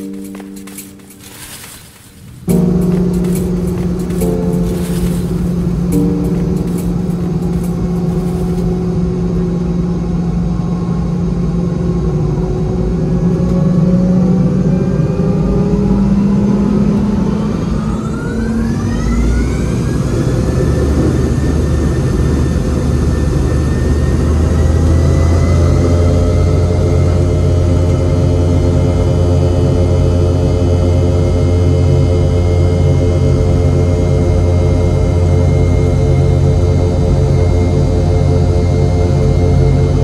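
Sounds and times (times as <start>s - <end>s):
jet engines whining: 0.0s - 30.5s.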